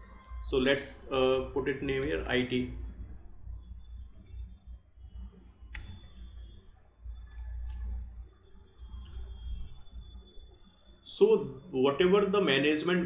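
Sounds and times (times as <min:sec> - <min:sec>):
low steady hum: 0:00.0 - 0:13.0
mouse clicks: 0:04.1 - 0:04.5, 0:05.7 - 0:06.3, 0:07.2 - 0:07.9
computer keyboard keystrokes: 0:05.7 - 0:06.0, 0:07.3 - 0:07.8.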